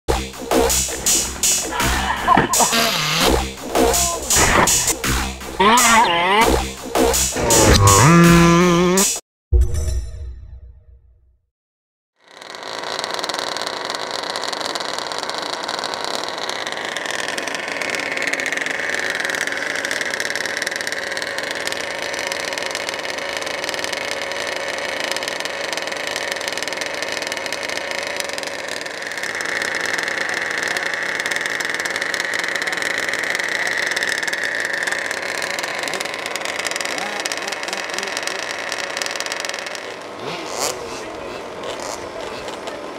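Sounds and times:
two-stroke engine running: 0.1 - 9.2, 12.2 - 42.9.

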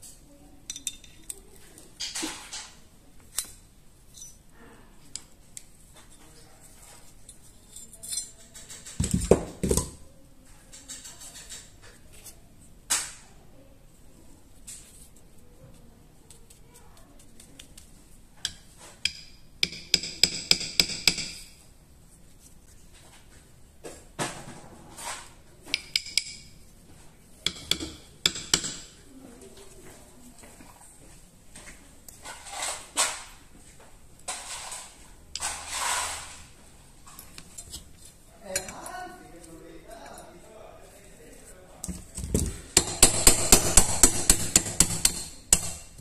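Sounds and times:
rustling handling noises: 0.9 - 9.8, 14.1 - 19.0, 21.8 - 24.2, 29.1 - 42.7.

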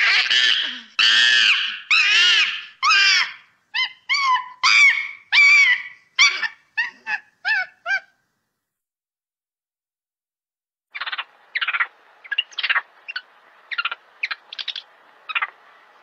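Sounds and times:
monkey screaming: 0.0 - 8.2.

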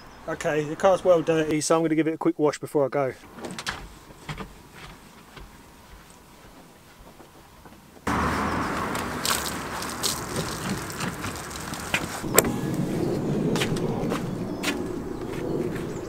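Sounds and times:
car body scrubbed with wash mitt: 8.1 - 12.3.

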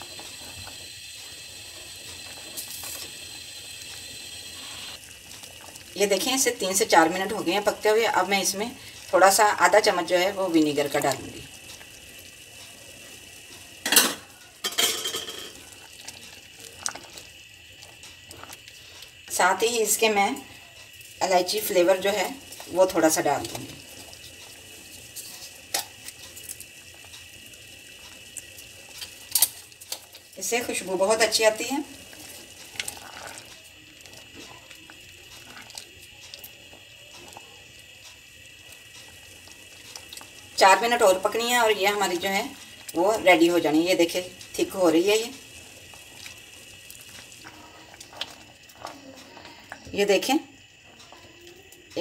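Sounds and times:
low sizzle: 0.0 - 52.0
spatula stirring in steel pot: 21.2 - 51.4.

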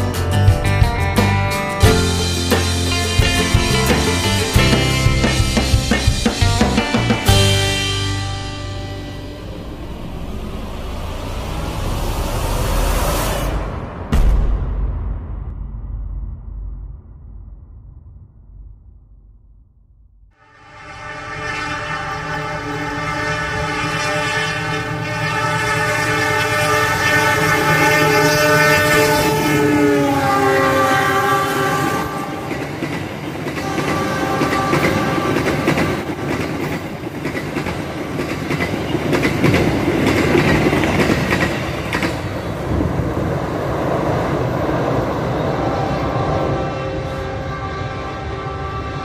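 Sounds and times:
locomotive horn blast: 2.4 - 5.6, 20.4 - 32.7, 33.6 - 36.1, 46.1 - 49.0
train wheels clacking over rail joints: 32.2 - 42.7.

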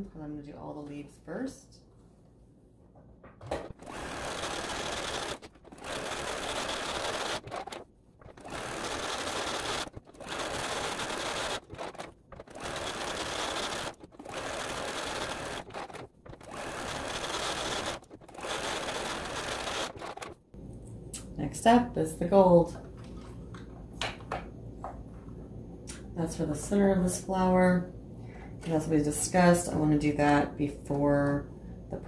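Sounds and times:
sewing machine stitching: 3.5 - 20.4.

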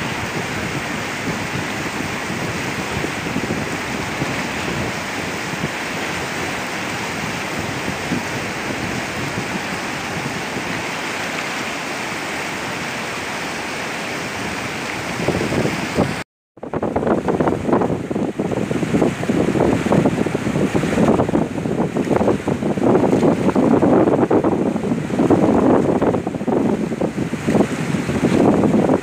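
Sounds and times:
river water rushing: 0.0 - 29.0.

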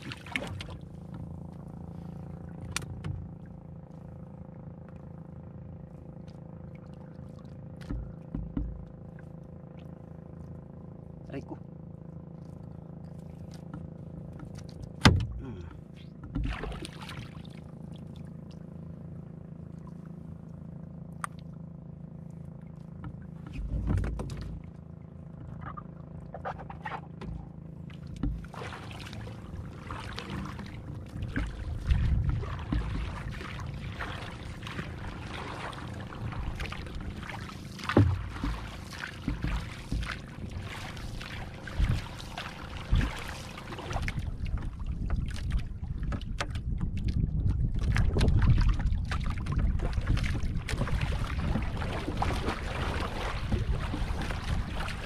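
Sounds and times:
low steady hum: 0.0 - 55.0
water splashing against hull: 0.0 - 55.0
knocks on canoe hull: 7.8 - 8.9.

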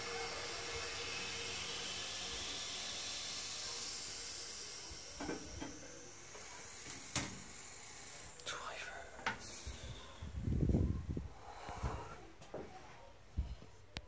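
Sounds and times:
toilet cistern inlet valve hissing: 0.0 - 8.5.

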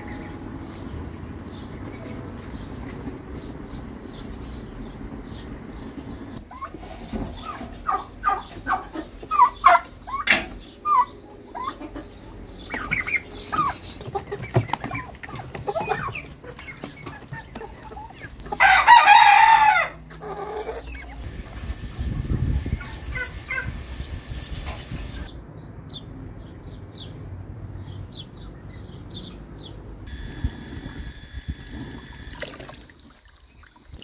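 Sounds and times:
turkeys and chickens clucking: 4.8 - 25.3
rooster crowing: 18.6 - 20.7.

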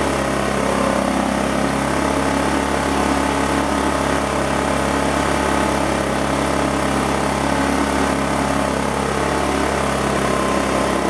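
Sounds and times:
generator engine running: 0.0 - 11.0.

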